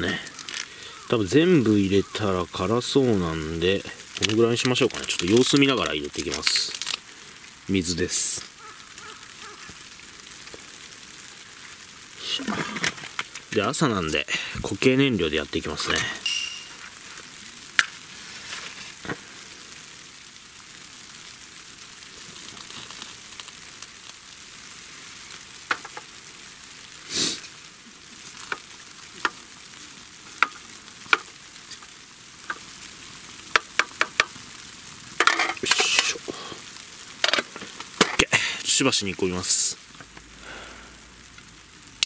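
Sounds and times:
rustle: 0:00.0 - 0:42.0
stove burning with crackling hiss: 0:00.0 - 0:42.0.

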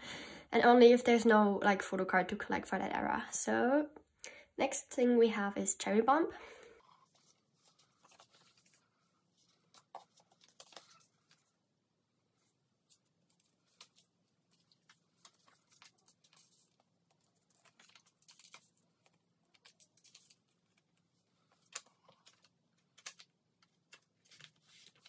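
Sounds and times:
plastic sleeves rustling: 0:06.5 - 0:11.7, 0:12.3 - 0:25.0.

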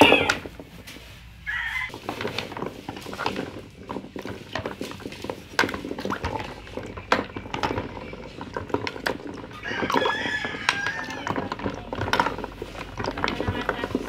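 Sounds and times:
chicken calling: 0:01.4 - 0:01.9
ice knocking in plastic basin: 0:01.9 - 0:14.0
water sloshing: 0:01.9 - 0:14.0.

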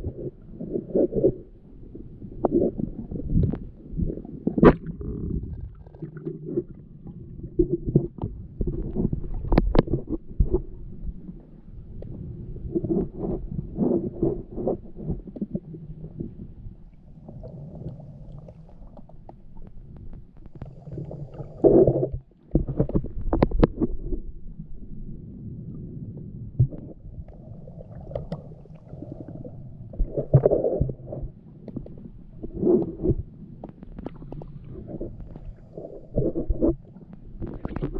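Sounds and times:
underwater rumbling and gurgling: 0:00.0 - 0:37.9
underwater knocks: 0:21.7 - 0:24.3.

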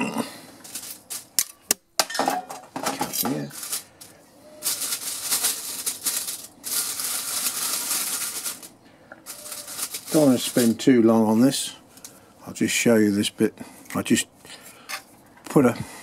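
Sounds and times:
wood pellets rattling into metal: 0:00.6 - 0:04.0, 0:04.6 - 0:10.9.

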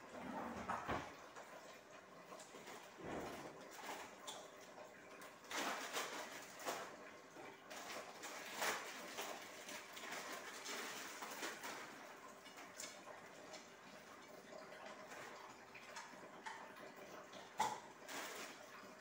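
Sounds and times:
kitchen utensils clattering: 0:00.0 - 0:01.2, 0:02.4 - 0:04.5.

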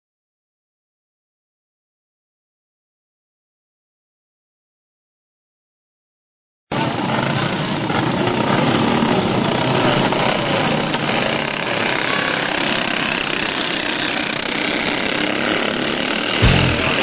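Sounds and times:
go-kart engines buzzing: 0:06.7 - 0:17.0.

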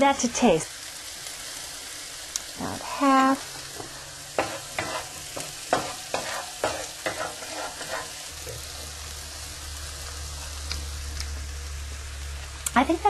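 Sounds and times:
butter sizzling in a pan: 0:00.0 - 0:13.0
utensil stirring sauce: 0:03.6 - 0:08.2.

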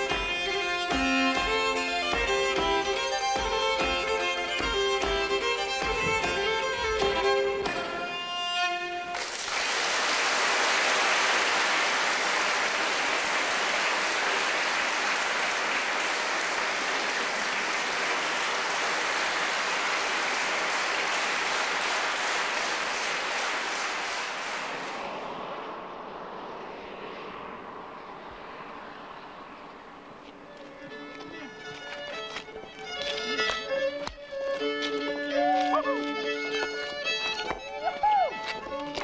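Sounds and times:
solo fiddle tune: 0:00.0 - 0:09.1, 0:27.6 - 0:39.0
audience applause: 0:09.1 - 0:34.2.

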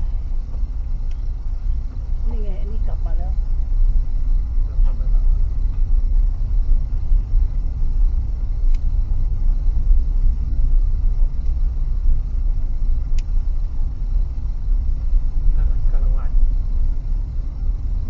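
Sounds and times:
car driving rumble from inside: 0:00.0 - 0:18.0
faint high ticks: 0:08.6 - 0:08.9, 0:13.1 - 0:13.4.

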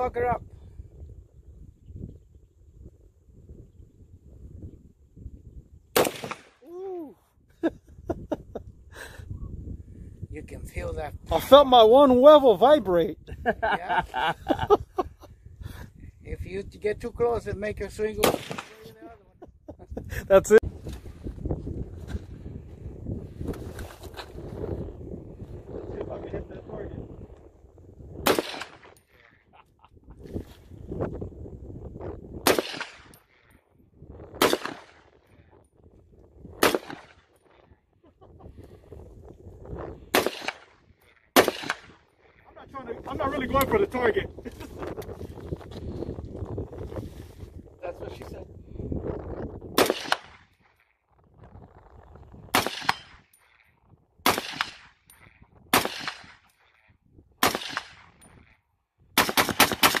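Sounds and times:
gunshots: 0:06.0 - 0:06.6, 0:18.2 - 0:19.0, 0:28.2 - 0:29.0, 0:32.4 - 0:33.2, 0:34.4 - 0:35.1, 0:36.6 - 0:37.3, 0:40.1 - 0:42.0, 0:49.8 - 0:50.5, 0:52.5 - 0:53.2, 0:54.2 - 0:55.0, 0:55.7 - 0:56.4, 0:57.4 - 0:58.2, 0:59.2 - 1:00.0.

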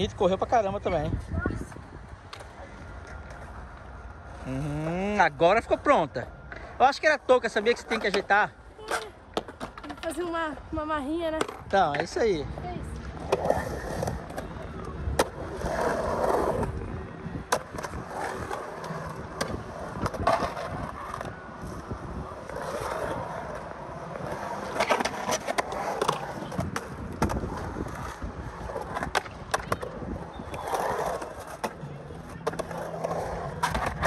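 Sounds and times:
skateboard wheels rolling on concrete: 0:00.0 - 0:34.0
skateboard trucks knocking: 0:24.2 - 0:34.0.

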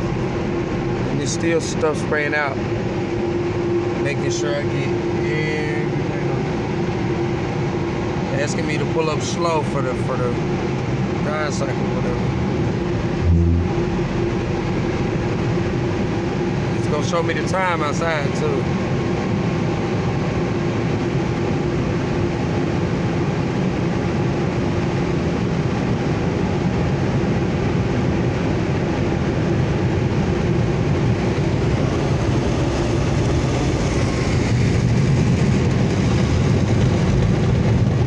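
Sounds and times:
low hum: 0:00.0 - 0:08.2, 0:10.1 - 0:17.1, 0:29.9 - 0:38.0.

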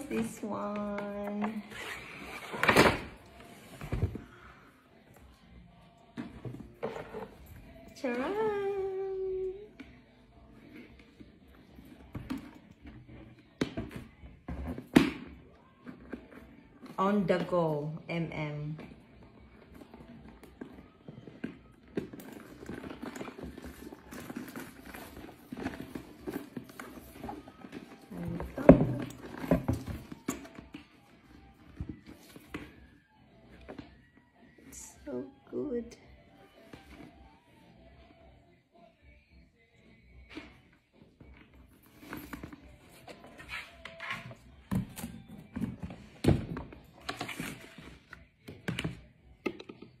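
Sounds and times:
bag rustling: 0:22.0 - 0:30.3.

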